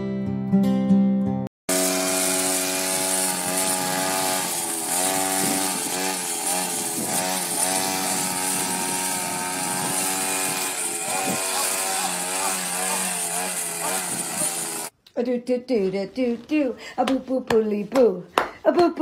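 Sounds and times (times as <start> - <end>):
brush cutter engine revving: 1.7 - 14.9.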